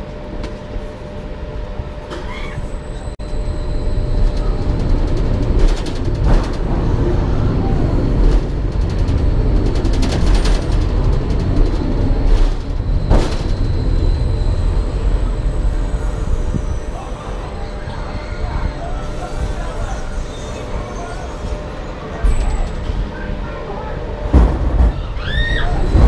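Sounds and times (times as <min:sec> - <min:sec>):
heavy train rumble: 0:00.0 - 0:26.0
sharp rattles and clatters: 0:04.2 - 0:06.8, 0:08.2 - 0:13.7.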